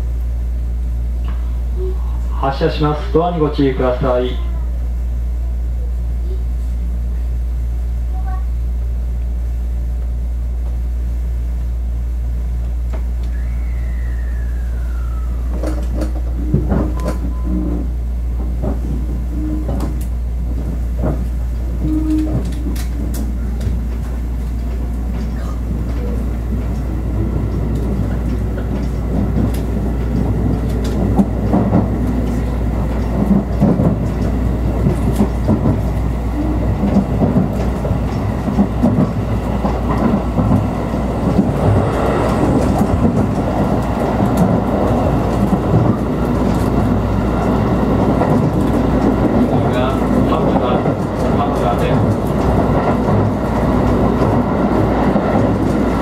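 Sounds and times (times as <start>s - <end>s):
train motor hum: 0.0s - 56.0s
train rumble: 0.0s - 56.0s
falling whine: 13.2s - 17.9s
wheel clicks over rail joints: 18.3s - 56.0s.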